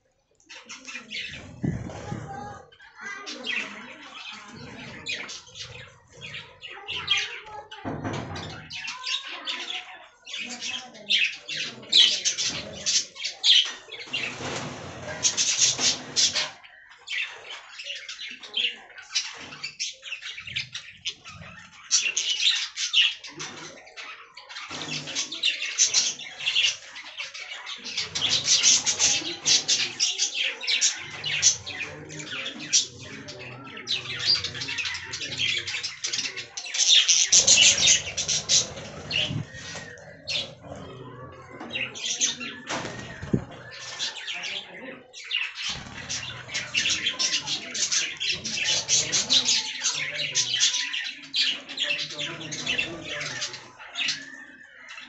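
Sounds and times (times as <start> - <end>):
budgerigars chirping: 27.5 - 54.2
bird squawks: 27.8 - 44.5.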